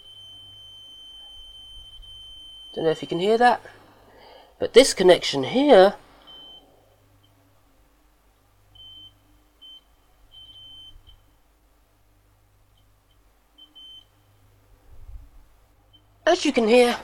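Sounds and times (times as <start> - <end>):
multimeter continuity beeps: 0.0 - 3.2, 6.2 - 7.4, 8.7 - 11.4, 12.7 - 14.4.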